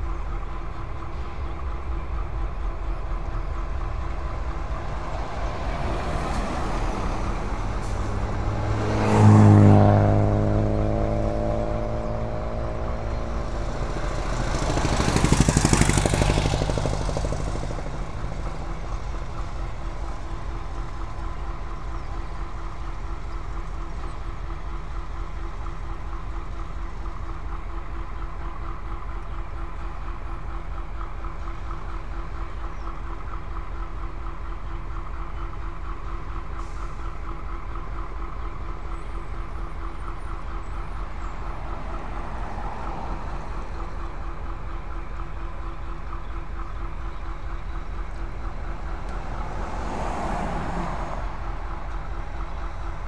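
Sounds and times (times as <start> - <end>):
idling diesel locomotives rumbling: 0.0 - 53.0
tyre noise of passing vehicle: 0.0 - 53.0
vehicle engine passing by: 3.9 - 21.1, 39.2 - 44.5, 48.0 - 53.0.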